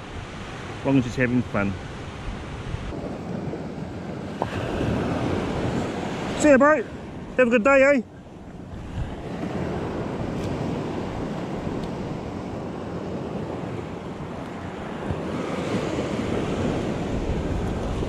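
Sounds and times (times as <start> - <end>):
small waves washing on beach: 0.0 - 18.0
wind buffeting microphone: 0.0 - 18.0.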